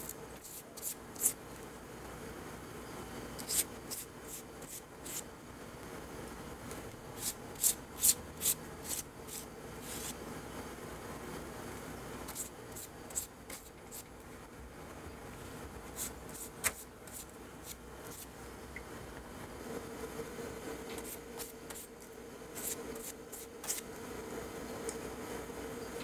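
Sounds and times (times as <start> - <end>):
soft pastry brush strokes: 0.0 - 1.6, 3.4 - 5.3, 7.1 - 10.2, 12.2 - 14.5, 15.3 - 18.4, 19.7 - 24.6.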